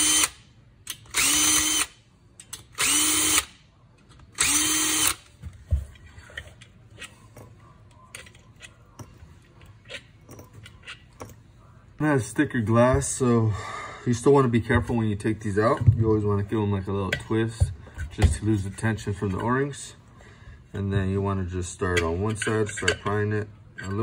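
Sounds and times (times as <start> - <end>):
cordless drill whining: 1.1 - 1.9, 2.8 - 3.5, 4.4 - 5.2.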